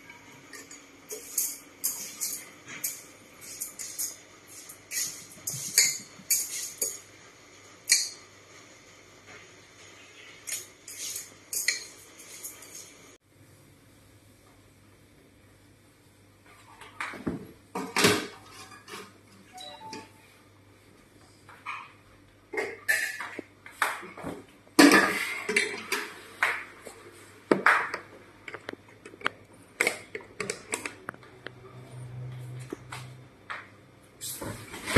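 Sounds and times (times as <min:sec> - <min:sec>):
pots and utensils clattering: 0:00.1 - 0:07.1, 0:07.8 - 0:08.2, 0:10.2 - 0:13.0, 0:17.0 - 0:20.0, 0:21.6 - 0:26.6.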